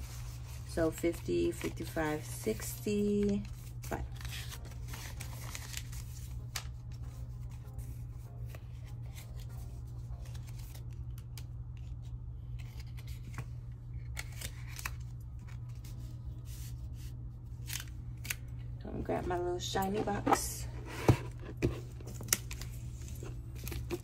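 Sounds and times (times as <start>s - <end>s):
paper banknotes rustling: 1.5s - 7.8s.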